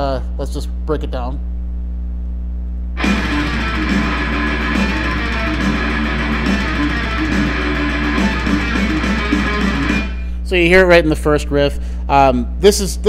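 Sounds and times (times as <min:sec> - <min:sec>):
distorted electric guitar riff: 0:03.0 - 0:10.4.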